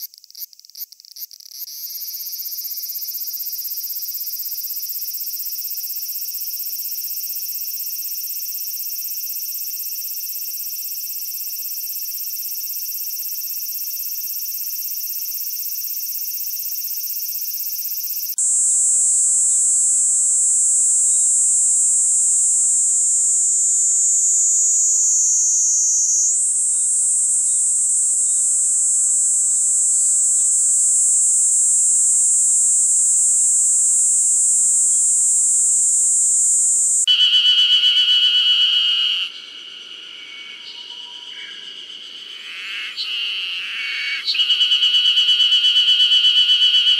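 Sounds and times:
cicada dense high buzzing: 0.0s - 46.9s
cicada wavering high buzz: 0.0s - 46.9s
pulsing cicada call: 0.0s - 46.9s.

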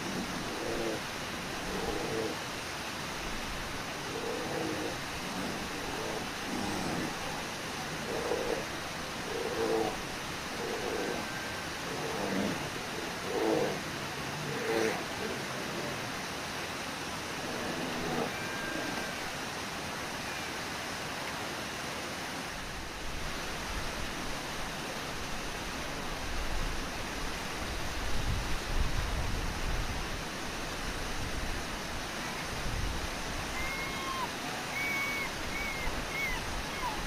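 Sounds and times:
waterfall and rapids rushing: 0.0s - 37.0s
faint short high calls: 33.5s - 37.0s.

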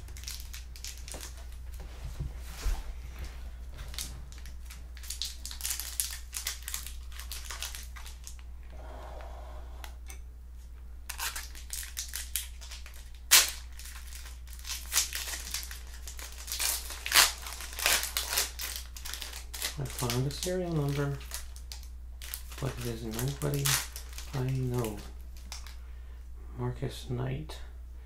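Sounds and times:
sharp wrapper crack: 0.0s - 1.6s, 3.9s - 8.5s, 11.1s - 25.8s
wrapper crinkling: 0.0s - 1.8s, 3.8s - 8.5s, 11.1s - 25.8s.

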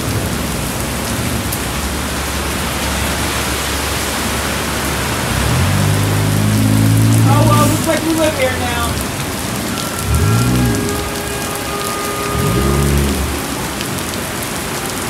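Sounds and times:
heavy rain on street: 0.0s - 15.0s
short low-pitched sound: 9.8s - 13.6s.

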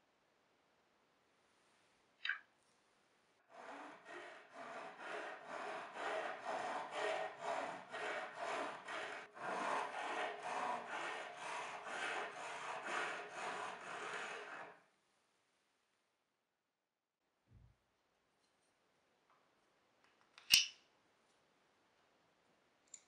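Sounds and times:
file rasping on steel: 3.5s - 14.8s.

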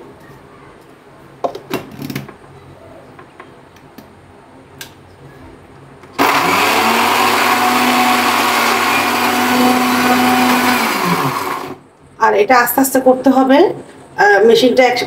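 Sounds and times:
electric blender running: 6.2s - 11.8s.

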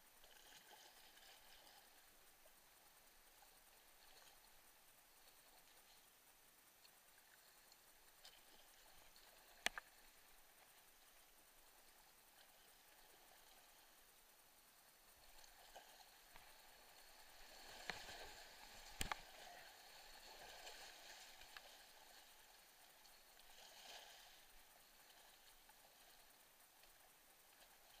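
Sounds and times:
creek water rushing and splashing: 15.5s - 25.8s.

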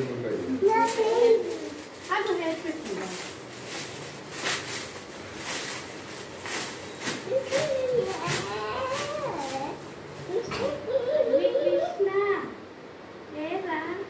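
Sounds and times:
soft rustling handling noises: 0.0s - 10.9s.

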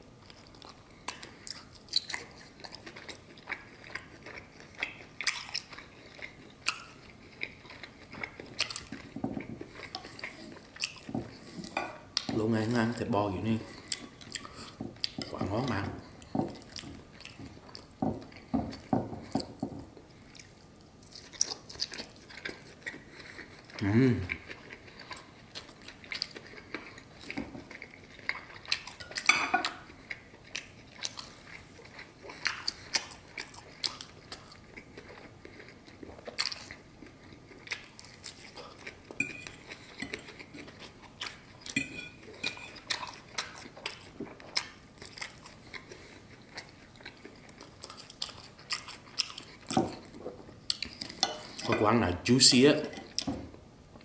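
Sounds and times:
chewing and crunching: 0.0s - 54.0s
cutlery clinking on a plate: 29.1s - 29.8s, 41.7s - 42.8s, 51.2s - 51.8s.

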